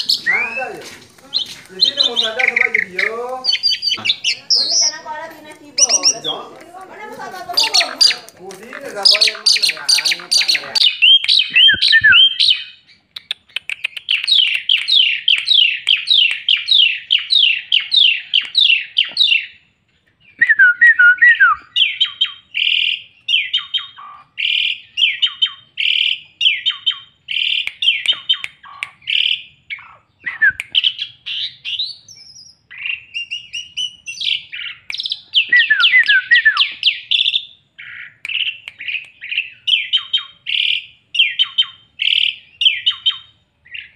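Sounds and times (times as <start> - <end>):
starling singing whistles: 0.0 - 5.1, 5.8 - 6.5, 9.0 - 13.0, 20.3 - 29.5, 30.2 - 43.9.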